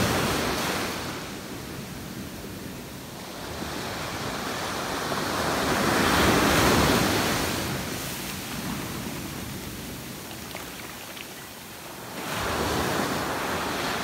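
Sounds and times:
ocean waves breaking: 3.2s - 14.0s.

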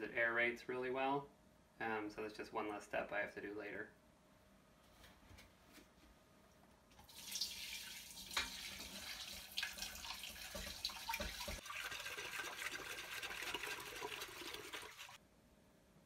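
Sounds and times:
water splashing: 7.1s - 15.2s
pot knocking in sink: 10.4s - 11.6s
tap running into metal pot: 10.4s - 11.6s.

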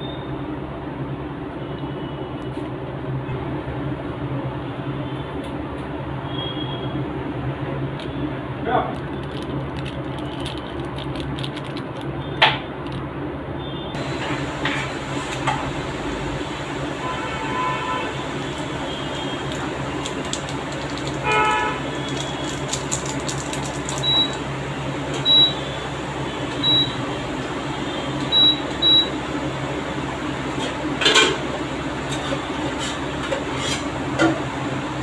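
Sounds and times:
induction cooktop humming: 12.4s - 35.0s
short high beeps: 25.2s - 25.6s, 26.6s - 27.0s, 28.3s - 29.1s
spatula scraping a pan: 32.7s - 33.9s.

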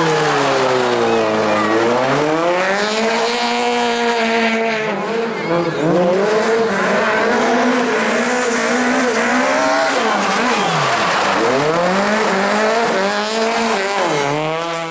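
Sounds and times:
rally car engine revving: 0.0s - 14.9s.

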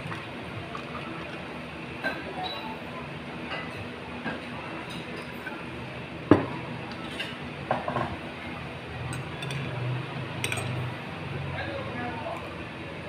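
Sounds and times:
tableware clatter: 10.4s - 10.8s.

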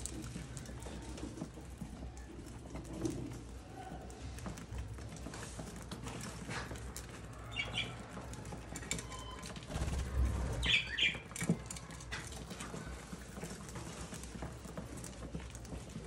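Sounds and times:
birds pecking seed: 0.0s - 16.0s
wings fluttering: 6.3s - 14.0s
bird chirps: 7.5s - 8.0s, 10.5s - 11.3s.

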